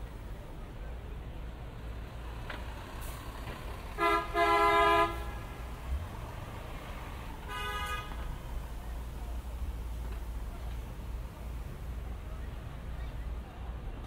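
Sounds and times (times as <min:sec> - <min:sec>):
low rumble of city traffic: 0:00.0 - 0:14.0
vehicle horns honking: 0:04.0 - 0:05.5, 0:07.4 - 0:08.4.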